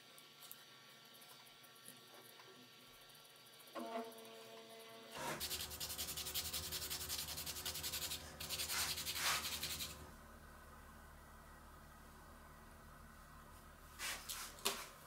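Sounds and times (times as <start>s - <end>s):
sandpaper rubbing wood: 5.4s - 10.0s.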